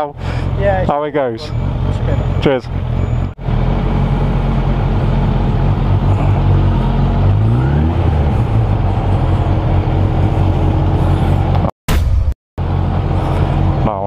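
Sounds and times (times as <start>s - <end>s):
motorcycle engine running: 0.2s - 11.7s.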